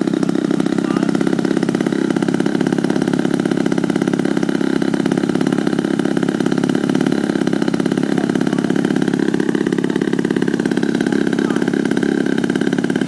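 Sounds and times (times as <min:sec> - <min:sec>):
model plane engine running: 0:00.0 - 0:13.0.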